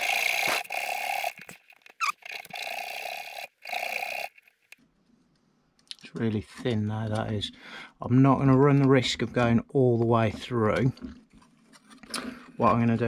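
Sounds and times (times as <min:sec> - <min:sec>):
hacksaw cutting metal: 0:00.0 - 0:04.3.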